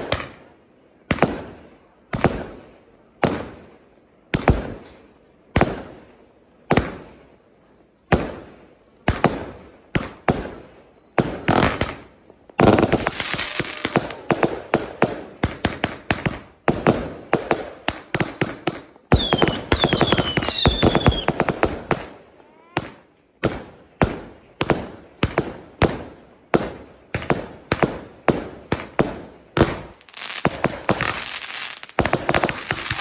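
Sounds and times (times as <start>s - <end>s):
fireworks bangs and crackling: 0.0s - 7.4s, 8.0s - 33.0s
falling firework whistles: 12.7s - 14.3s, 19.2s - 21.4s.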